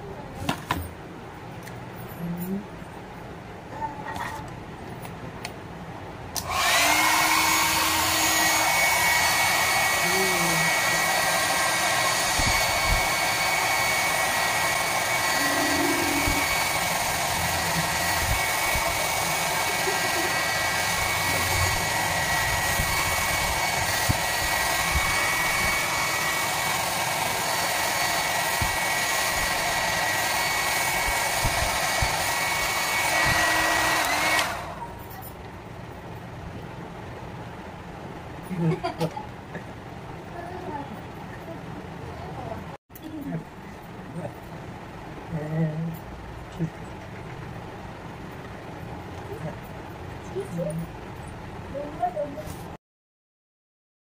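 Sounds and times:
hair dryer switch: 0:06.3 - 0:10.0, 0:10.6 - 0:34.8
hair dryer blowing: 0:06.4 - 0:35.0.

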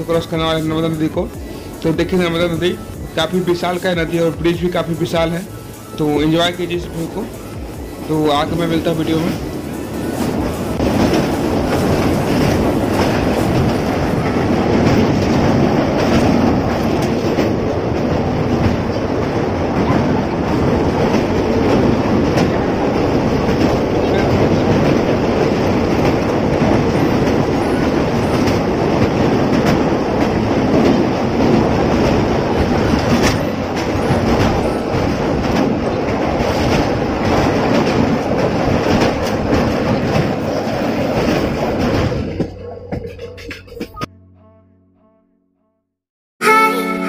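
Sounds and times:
train wheels rumbling on rails: 0:00.0 - 0:44.1
wheels clickety-clack: 0:00.0 - 0:44.1.

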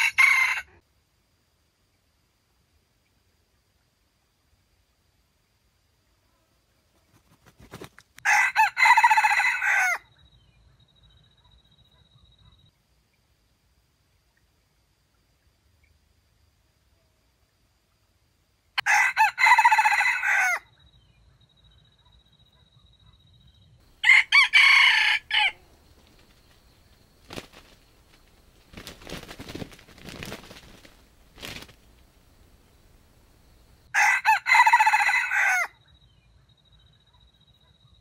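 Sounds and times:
rooster crowing: 0:00.0 - 0:00.8, 0:08.2 - 0:10.1, 0:18.8 - 0:20.7, 0:23.9 - 0:25.7, 0:33.9 - 0:35.8.

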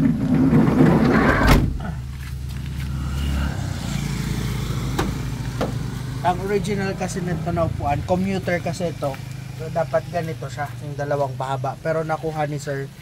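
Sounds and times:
sliding van door rolling: 0:00.0 - 0:01.9
van door slamming shut: 0:00.4 - 0:02.0, 0:04.9 - 0:05.8.

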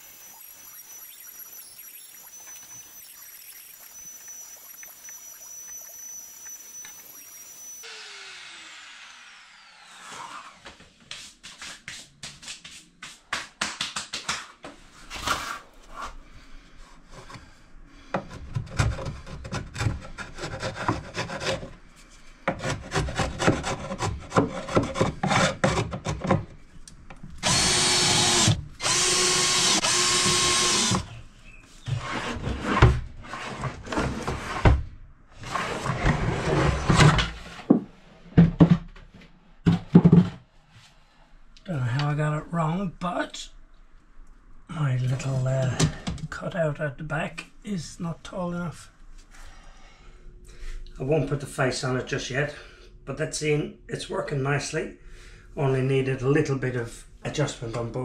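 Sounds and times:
cordless drill running: 0:00.0 - 0:10.6, 0:27.4 - 0:31.1.

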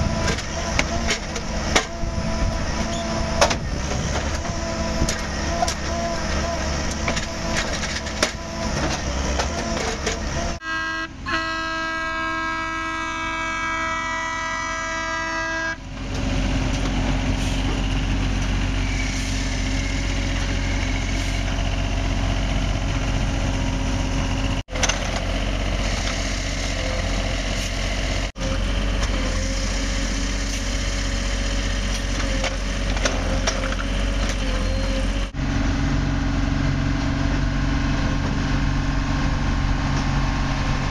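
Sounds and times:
diesel engines running: 0:00.0 - 0:40.9
multi-note air horn: 0:10.6 - 0:15.9.

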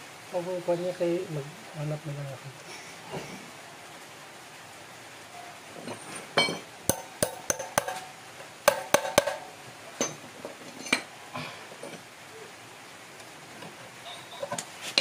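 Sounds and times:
metal-on-metal taps and clinks: 0:06.4 - 0:08.1, 0:08.7 - 0:11.1.

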